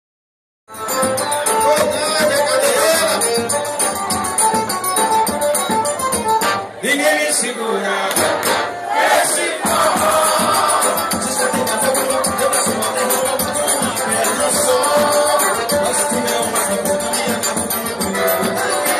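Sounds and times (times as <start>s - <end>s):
bass drum beats: 0.7s - 6.6s, 9.6s - 18.9s
accordion: 0.7s - 18.9s
man singing: 1.4s - 4.0s, 9.6s - 18.9s.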